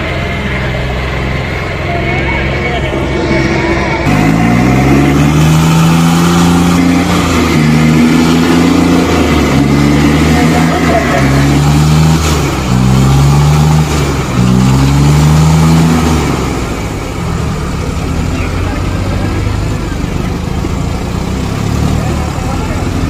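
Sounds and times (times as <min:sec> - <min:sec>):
diesel tractor engines pulling: 0:00.0 - 0:23.0.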